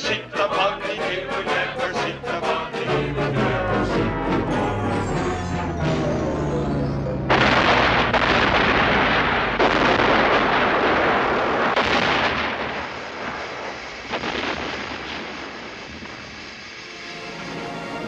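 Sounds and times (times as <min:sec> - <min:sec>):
explosions with rumble: 0:06.6 - 0:17.6.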